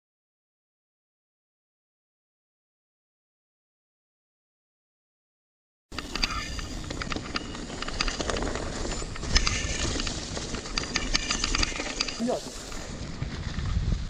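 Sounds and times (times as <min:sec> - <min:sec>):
bike clicking and rattling: 0:05.9 - 0:14.0
bike tyres rolling over leaves: 0:06.0 - 0:14.0.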